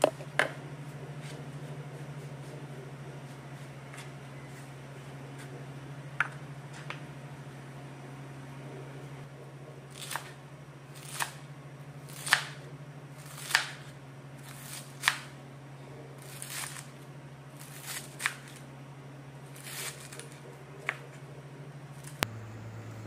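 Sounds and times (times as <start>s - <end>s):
steady low hum: 0.0s - 23.0s
knife crunching through cabbage: 16.2s - 17.0s, 17.6s - 18.6s, 19.5s - 20.4s.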